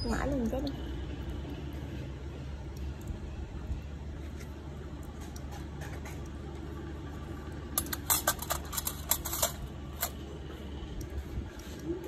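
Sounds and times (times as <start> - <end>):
steady low hum: 0.1 - 12.0
metal instruments clinking: 7.8 - 10.2.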